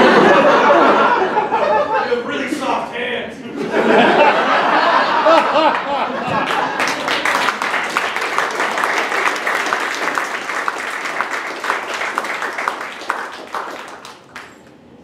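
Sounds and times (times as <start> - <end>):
audience applauding: 5.1 - 14.8.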